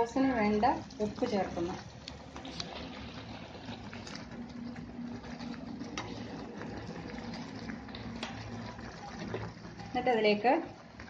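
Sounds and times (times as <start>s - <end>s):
tomato paste simmering in oil: 0.0s - 11.0s.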